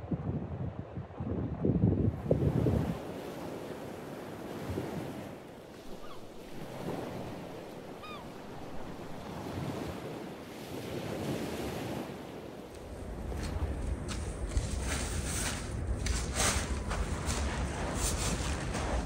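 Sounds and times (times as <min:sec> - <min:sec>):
wind: 0:00.0 - 0:19.0
sea waves washing: 0:02.2 - 0:19.0
bird call: 0:05.9 - 0:06.3, 0:08.0 - 0:08.4.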